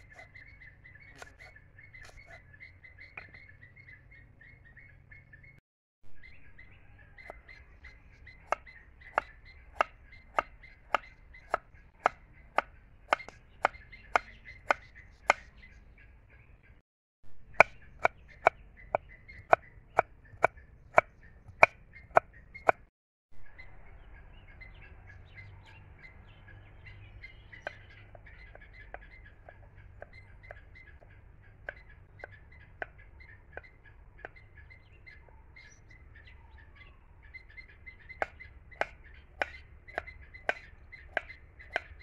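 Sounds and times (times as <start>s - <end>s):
knife chopping on wooden board: 9.2s - 15.5s, 17.5s - 18.6s, 19.4s - 22.9s, 38.2s - 42.0s.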